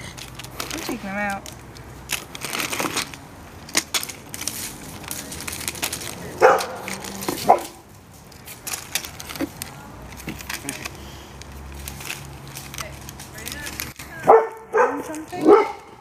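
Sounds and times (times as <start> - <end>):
plastic wrappers crinkling: 0.0 - 15.8
dog barking: 6.4 - 7.8, 14.2 - 15.9.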